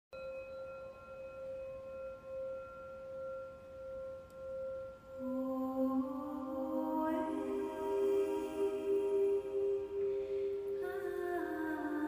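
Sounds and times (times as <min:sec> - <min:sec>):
singing bowl ringing: 0:00.2 - 0:12.0.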